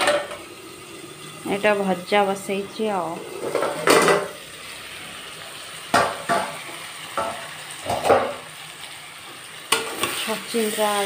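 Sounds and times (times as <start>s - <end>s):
vegetables sizzling in a pan: 0.0s - 11.0s
metal spatula scraping a pan: 9.7s - 11.0s.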